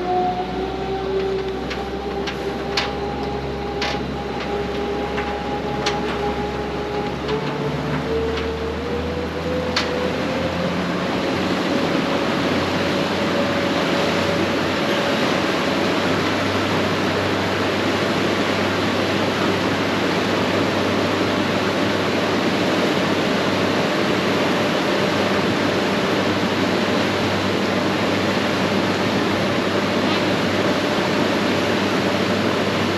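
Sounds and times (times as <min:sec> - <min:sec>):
boat motor whining: 0:00.0 - 0:23.8.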